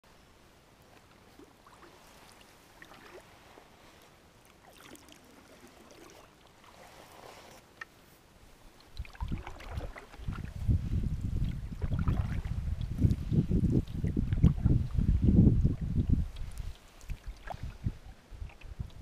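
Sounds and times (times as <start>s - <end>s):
water lapping at hull: 0.8s - 19.0s
wind rumble on microphone: 8.9s - 19.0s.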